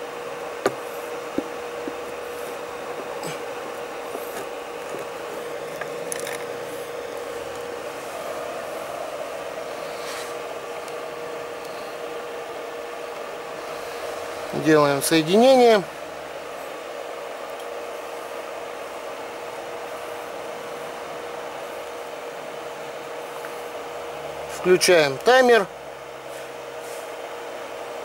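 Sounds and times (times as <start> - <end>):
cooling fan humming: 0.0 - 28.0
handling clicks and rubs: 0.4 - 8.0.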